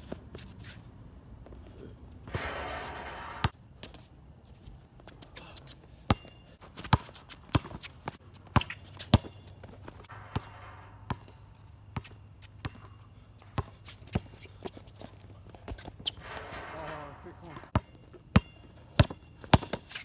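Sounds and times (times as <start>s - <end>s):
basketball bouncing on hard court: 2.3s - 3.5s, 10.0s - 14.3s, 15.7s - 19.8s
footsteps on court: 2.4s - 20.0s.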